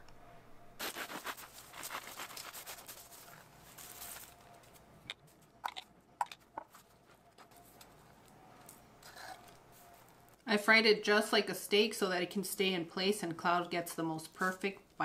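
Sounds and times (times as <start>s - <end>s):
bread crust crackling: 0.8s - 4.8s.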